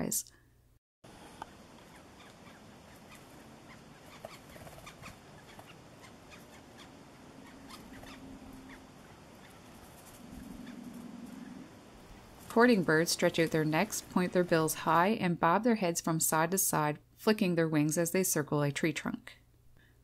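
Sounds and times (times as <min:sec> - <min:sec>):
low hum: 0:00.3 - 0:15.0
woodpecker tapping on bark: 0:01.4 - 0:09.7.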